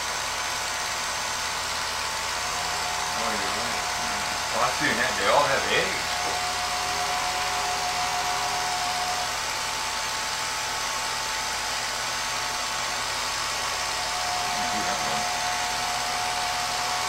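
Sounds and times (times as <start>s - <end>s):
film projector motor whirring: 0.0s - 17.0s
faint high hum: 2.2s - 9.7s, 12.9s - 17.0s.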